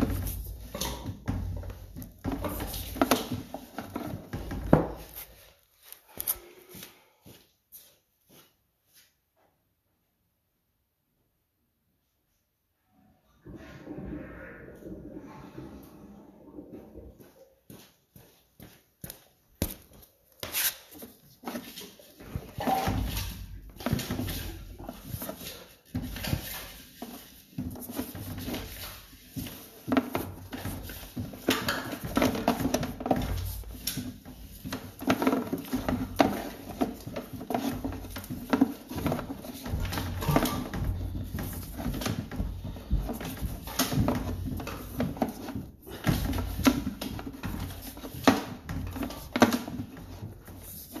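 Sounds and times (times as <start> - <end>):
cable knocking and scraping in pipe: 22.4 - 51.0.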